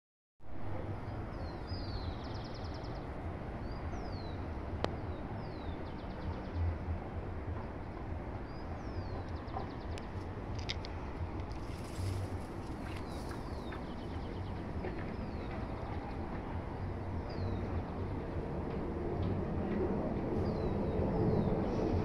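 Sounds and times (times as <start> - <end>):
wind rumble on microphone: 0.4 - 22.0
songbird singing: 1.0 - 6.8, 7.6 - 18.4.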